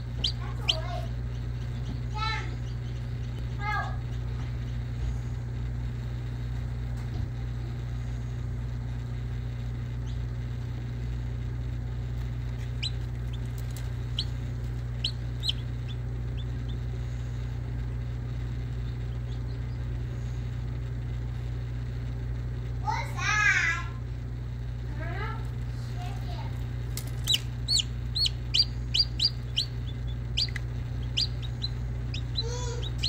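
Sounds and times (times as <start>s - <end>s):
chick peeping: 0.0s - 3.5s, 12.5s - 17.0s, 18.6s - 20.0s, 27.2s - 33.0s
incubator humming: 0.0s - 33.0s.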